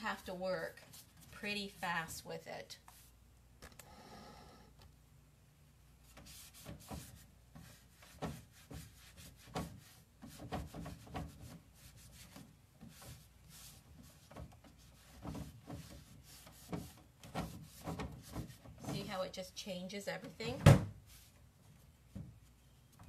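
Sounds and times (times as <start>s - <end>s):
cloth rubbing on wood: 6.0s - 19.3s.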